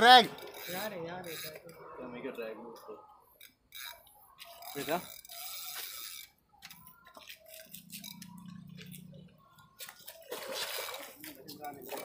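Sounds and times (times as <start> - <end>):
fishing reel drag clicking: 0.4 - 1.7, 3.4 - 6.8.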